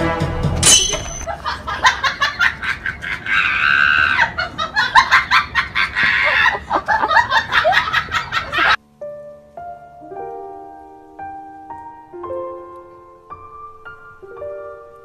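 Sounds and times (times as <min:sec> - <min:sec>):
person laughing in cackles: 0:01.3 - 0:08.8.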